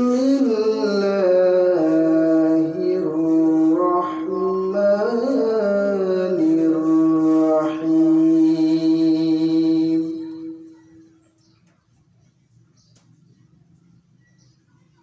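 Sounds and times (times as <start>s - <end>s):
man chanting recitation: 0.0s - 10.8s.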